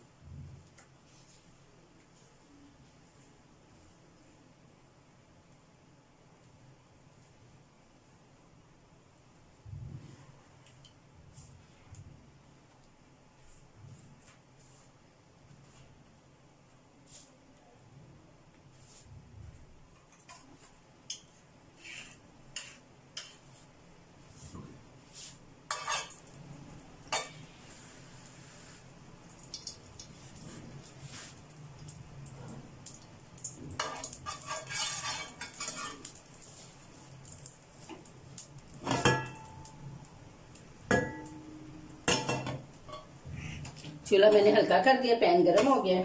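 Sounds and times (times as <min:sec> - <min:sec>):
metal spoon clinking on dishes: 0:25.7 - 0:26.2, 0:38.8 - 0:39.8, 0:40.9 - 0:43.1
frying pan clanking on metal grate: 0:38.8 - 0:39.7, 0:40.9 - 0:43.1.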